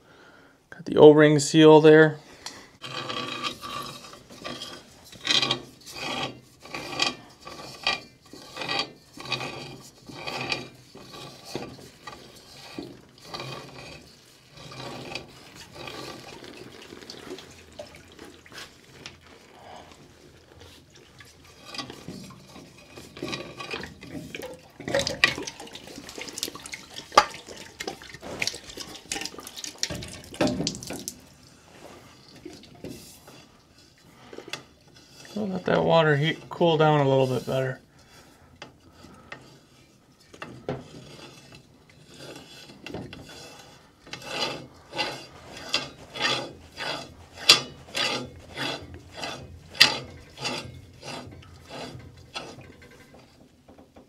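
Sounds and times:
water dripping and splashing: 10.9 - 35.4
metal tank knocking and rubbing: 20.0 - 33.5, 40.4 - 54.0.

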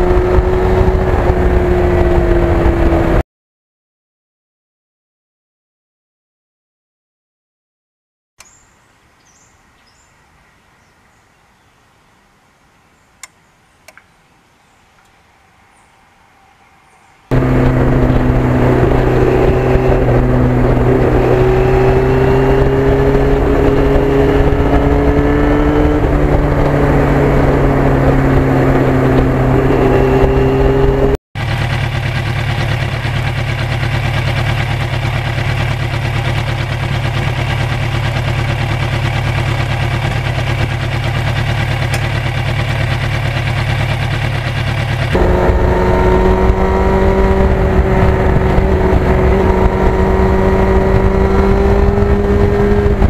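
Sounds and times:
motorcycle engine cruising: 0.0 - 3.2, 17.3 - 53.0.

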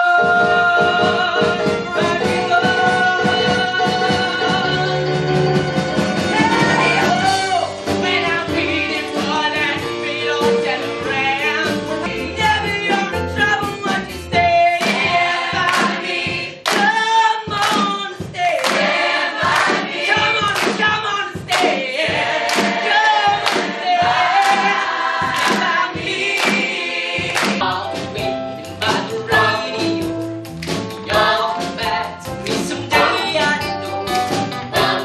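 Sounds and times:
musical theatre song with accompaniment: 0.0 - 35.0.

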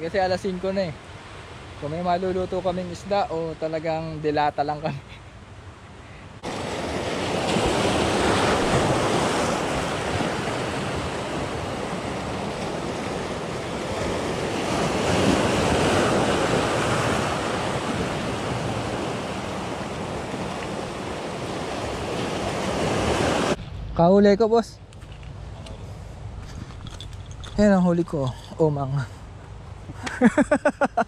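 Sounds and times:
surf breaking over rocks: 6.4 - 23.6.

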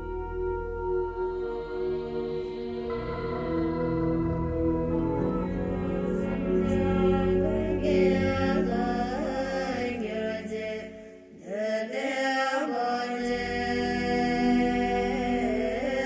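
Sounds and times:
sustained drone: 0.0 - 11.1
chanting voices: 1.1 - 16.0.

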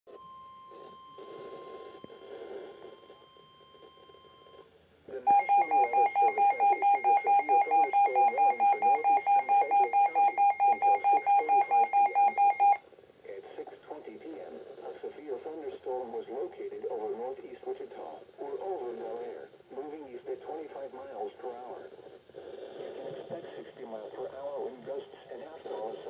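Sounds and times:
high warning tone: 0.1 - 12.8
broadcast voice: 5.1 - 11.9, 13.3 - 22.0, 22.9 - 26.0
rapid alert beeping: 5.3 - 12.8.

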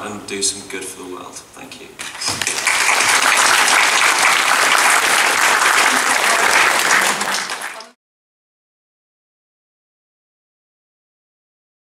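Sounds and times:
audience applauding: 2.0 - 8.0.

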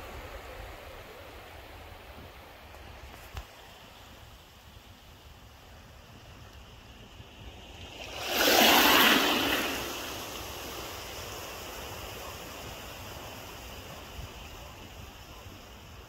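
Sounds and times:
sea wave breaking: 7.1 - 14.4.

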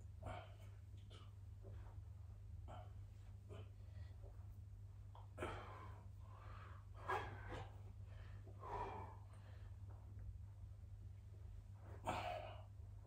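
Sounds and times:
steady low hum: 0.0 - 13.0
man breathing hard: 5.2 - 10.1, 12.0 - 12.8.

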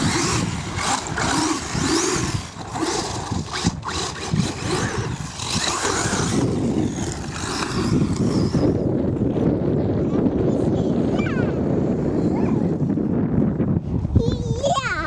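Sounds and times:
toy car electric motor whining: 0.0 - 9.0
tires sliding across sand: 0.0 - 13.6.

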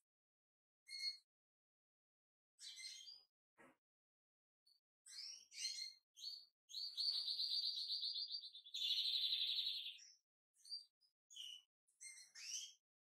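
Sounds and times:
goldfinch singing: 5.1 - 12.8.

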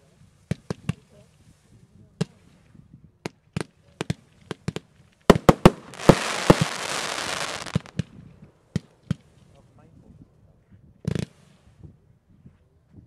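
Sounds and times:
fireworks bangs: 5.3 - 8.0.

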